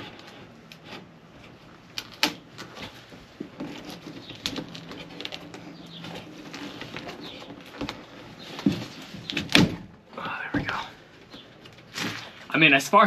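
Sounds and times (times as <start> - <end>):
clicks and knocks of wooden board: 2.2 - 12.3.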